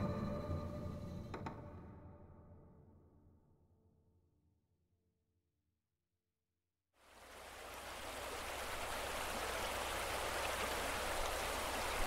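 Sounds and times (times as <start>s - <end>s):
running water rushing: 7.0s - 12.0s.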